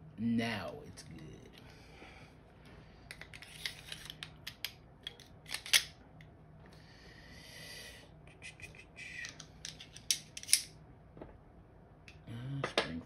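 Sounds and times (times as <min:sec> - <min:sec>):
small pistol parts clicking: 0:03.1 - 0:05.9, 0:09.2 - 0:10.7.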